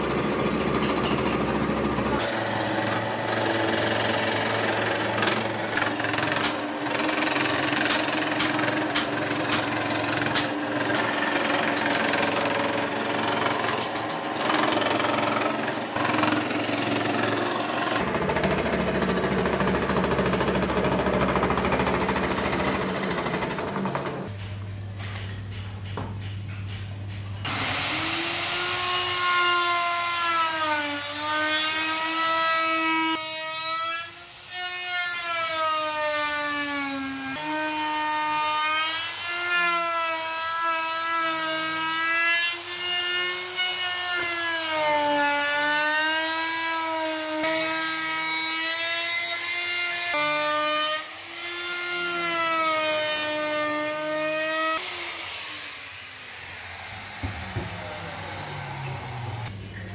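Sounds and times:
electric router cutting wood: 0:02.0 - 0:24.3, 0:27.5 - 0:59.5.

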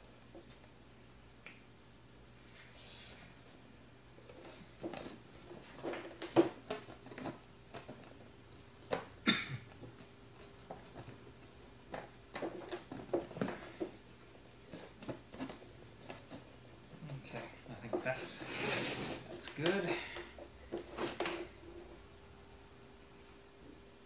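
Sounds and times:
cardboard scraping rustle: 0:17.1 - 0:19.8.

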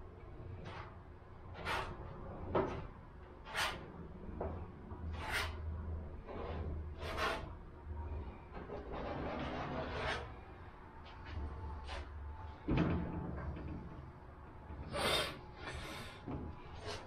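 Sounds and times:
low steady hum: 0:00.0 - 0:17.0
spreader scraping filler on metal: 0:01.5 - 0:02.1, 0:03.4 - 0:03.9, 0:05.1 - 0:07.6, 0:08.8 - 0:10.4.

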